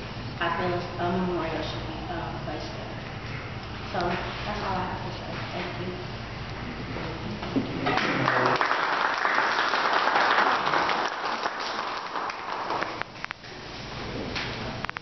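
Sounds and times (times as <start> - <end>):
small audience clapping: 7.8 - 13.1.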